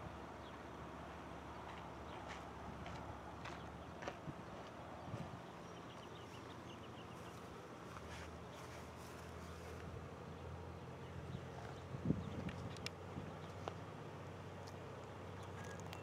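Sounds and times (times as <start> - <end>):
distant diesel locomotive drone: 0.0 - 16.0.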